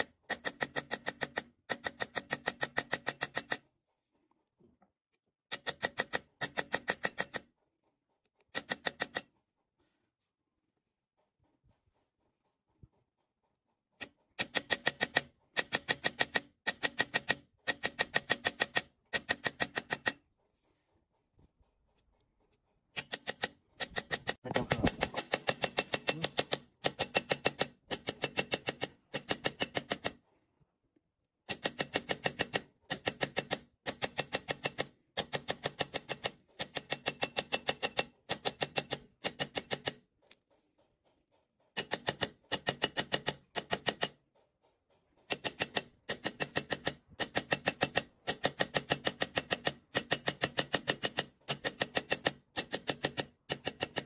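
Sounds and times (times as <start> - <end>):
hammer tapping metal punch: 0.0 - 3.6, 5.5 - 7.5, 14.0 - 20.2, 23.0 - 30.2, 31.5 - 40.4, 41.8 - 44.2, 45.3 - 54.0.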